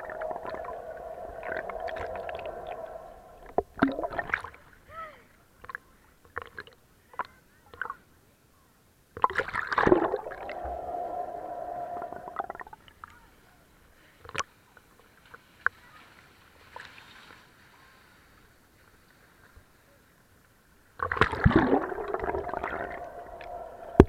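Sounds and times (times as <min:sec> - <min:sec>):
muffled underwater bubbling: 0:00.0 - 0:04.5, 0:09.3 - 0:12.8, 0:21.0 - 0:24.0
water drips: 0:00.0 - 0:04.6, 0:09.2 - 0:13.0, 0:21.0 - 0:24.0
pool water splashing and gurgling: 0:00.0 - 0:04.8, 0:09.2 - 0:12.9, 0:21.0 - 0:24.0
loud splash: 0:09.7 - 0:12.6, 0:21.1 - 0:24.0.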